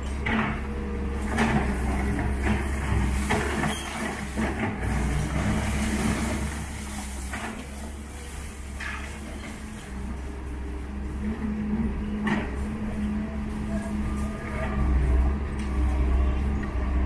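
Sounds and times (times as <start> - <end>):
excavator diesel engine running: 0.0 - 17.0
rubble crashing and clattering: 1.3 - 9.8.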